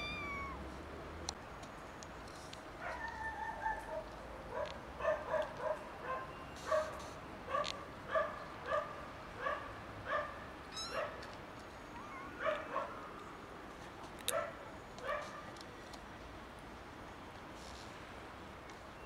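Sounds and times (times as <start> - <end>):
kittens mewing: 0.0 - 0.7, 10.7 - 11.1, 11.9 - 12.7.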